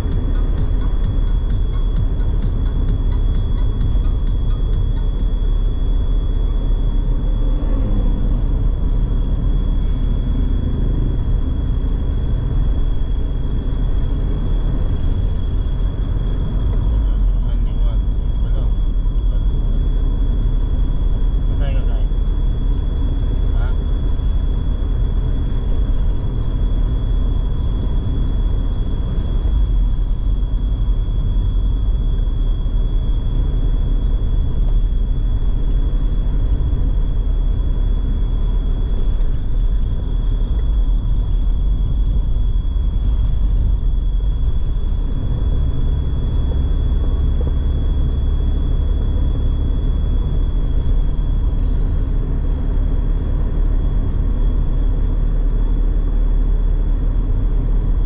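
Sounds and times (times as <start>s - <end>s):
high-pitched tone: 0.0s - 20.4s
vehicle rumbling on road: 0.0s - 58.0s.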